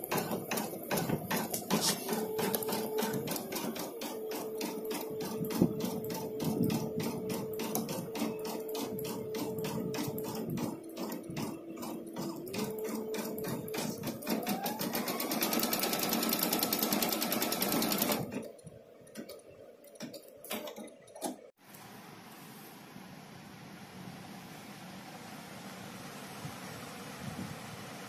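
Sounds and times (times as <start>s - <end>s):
sewing machine stitching: 0.0s - 18.5s.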